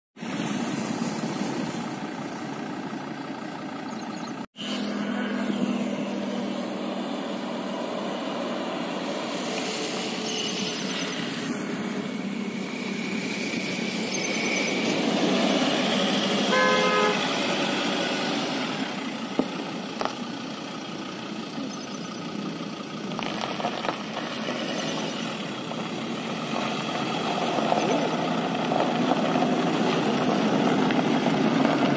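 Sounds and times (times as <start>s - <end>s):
car engines and traffic noise: 0.2s - 31.9s
car horn toot: 16.4s - 17.5s.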